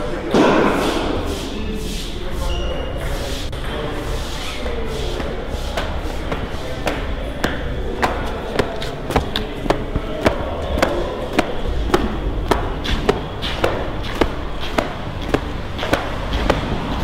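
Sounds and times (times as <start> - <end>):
footsteps on hard floor: 5.2 - 17.0.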